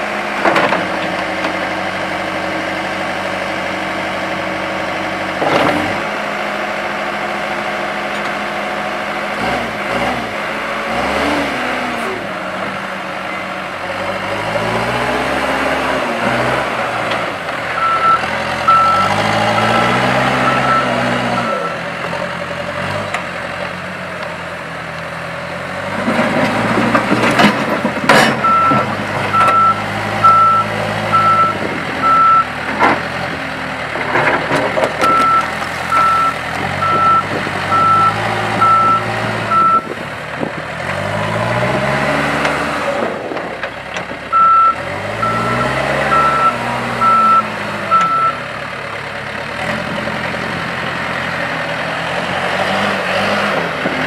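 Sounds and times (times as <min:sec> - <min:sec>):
diesel engine running: 0:00.0 - 0:54.0
reversing alarm beeping: 0:17.8 - 0:21.8, 0:28.4 - 0:32.5, 0:35.0 - 0:39.9, 0:44.4 - 0:48.4.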